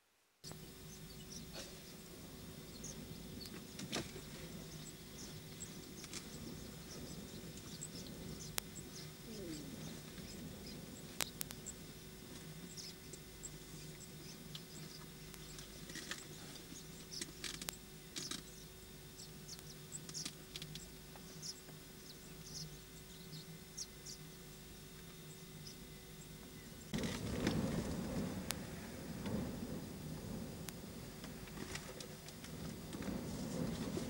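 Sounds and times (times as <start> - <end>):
steady low hum: 0.0 - 34.0
high chirps and ticks: 0.5 - 26.9
sharp clicks: 17.1 - 18.5.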